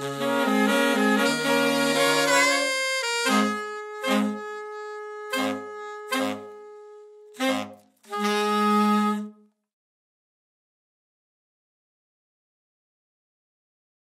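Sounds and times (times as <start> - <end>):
saxophone ensemble playing: 0.0 - 9.5.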